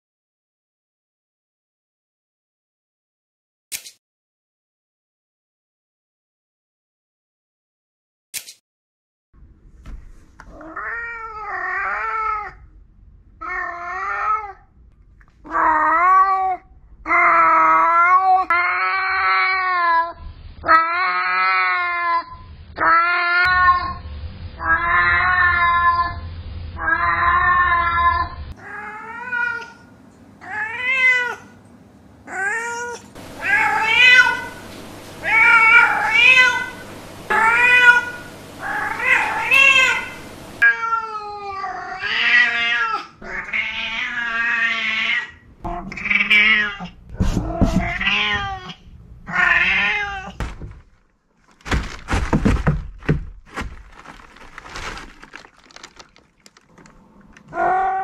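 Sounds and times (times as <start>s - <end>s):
cat meowing: 35.2s - 50.4s
sharp knocks and thumps: 47.1s - 48.6s, 50.4s - 56.9s.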